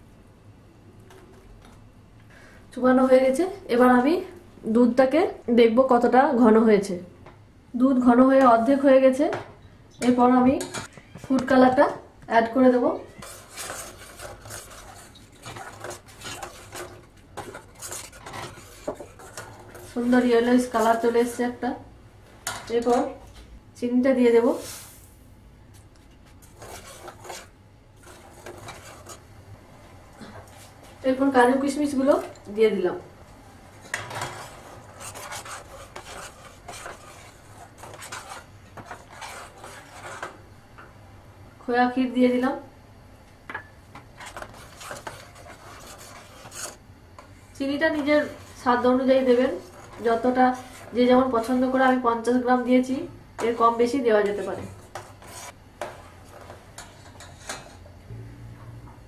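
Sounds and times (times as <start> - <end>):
metal spoon scraping pot: 13.1 - 21.4, 26.5 - 29.2, 33.8 - 40.4, 44.2 - 46.8, 54.3 - 57.8.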